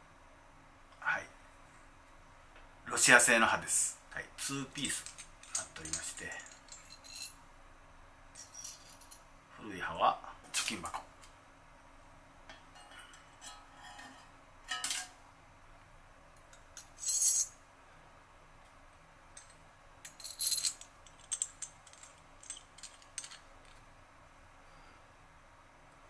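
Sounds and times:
small metal clicks and clinks: 4.9s - 7.4s, 19.4s - 23.8s
metal scraping: 12.7s - 15.1s.

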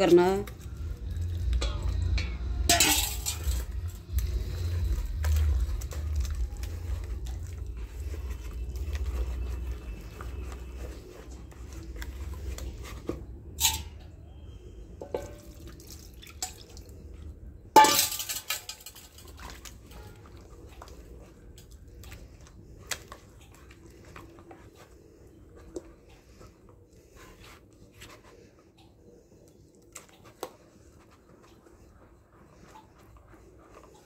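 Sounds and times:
batter squelching in a bowl: 0.0s - 34.0s.

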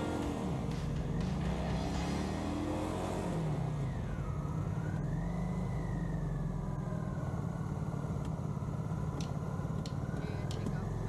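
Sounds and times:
motorcycle engine running: 0.0s - 4.9s
wind and road noise: 0.0s - 11.0s.

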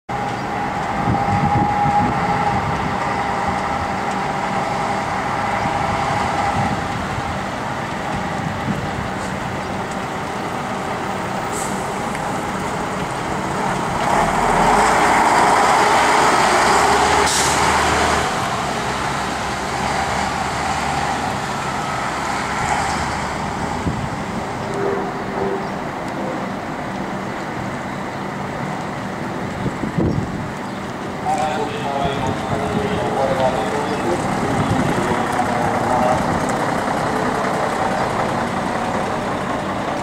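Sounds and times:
bus engines running: 0.1s - 40.0s
road traffic: 0.1s - 40.0s
air brake hiss: 11.5s - 12.0s.

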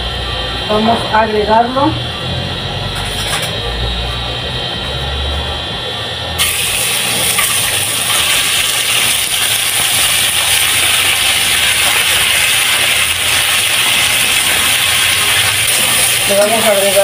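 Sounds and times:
chicken sizzling in hot oil: 6.4s - 17.0s.

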